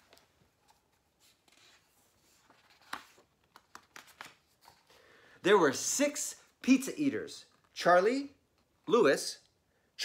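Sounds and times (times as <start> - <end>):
book pages rustling: 0.0 - 5.0.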